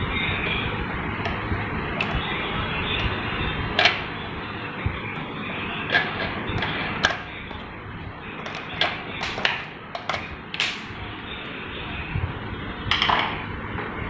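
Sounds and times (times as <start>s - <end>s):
steady background hiss: 0.0s - 14.0s
plastic parts clicking: 3.8s - 4.1s, 5.2s - 7.7s, 8.4s - 10.9s.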